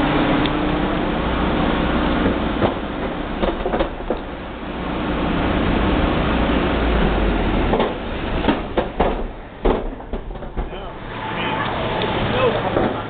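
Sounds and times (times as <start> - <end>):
van engine exhaust rumbling: 0.0 - 13.0.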